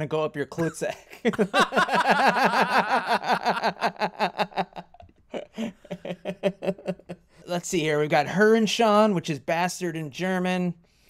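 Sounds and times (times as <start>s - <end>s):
men laughing: 0.9s - 7.2s.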